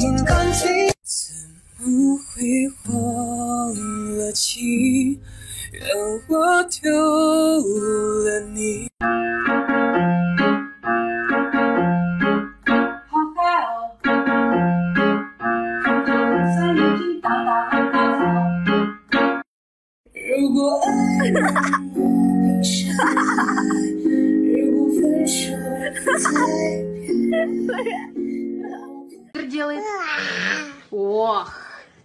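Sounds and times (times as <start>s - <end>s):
keyboard tune with bass note: 0.0s - 0.9s, 9.0s - 13.0s, 14.0s - 19.4s, 20.4s - 29.4s.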